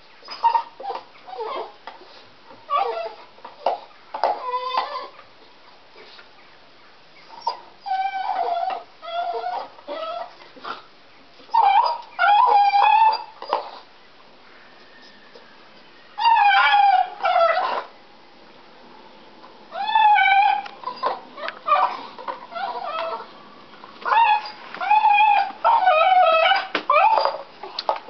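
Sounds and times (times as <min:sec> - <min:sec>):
dog crying and whining: 0:00.2 - 0:01.8, 0:02.7 - 0:05.2, 0:07.3 - 0:10.4, 0:11.5 - 0:13.9, 0:16.2 - 0:17.9, 0:19.7 - 0:23.4, 0:24.0 - 0:28.0.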